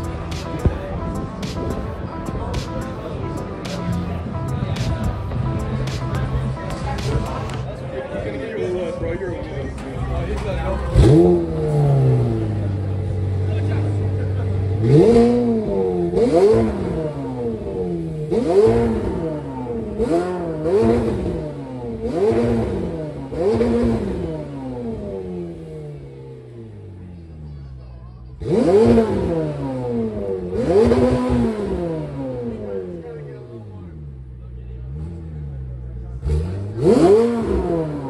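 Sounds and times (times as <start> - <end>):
engine revving: 9.8 - 27.2, 28.3 - 38.0.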